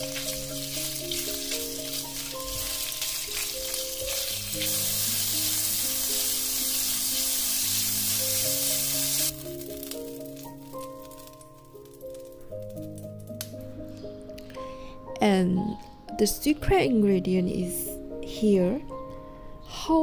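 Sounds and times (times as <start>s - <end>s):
shrimp sizzling in oil: 0.0s - 13.2s.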